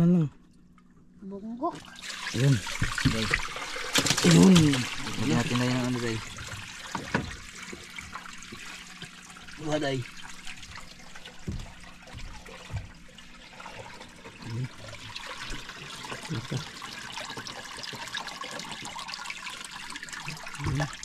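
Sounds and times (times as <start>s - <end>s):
water trickling and splashing: 1.7s - 21.0s
low knocks on wooden boat: 11.4s - 13.0s.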